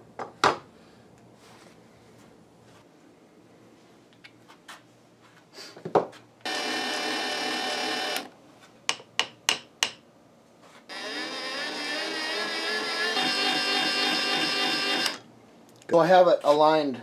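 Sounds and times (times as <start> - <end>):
electric motor running: 6.4 - 8.3, 10.9 - 15.2.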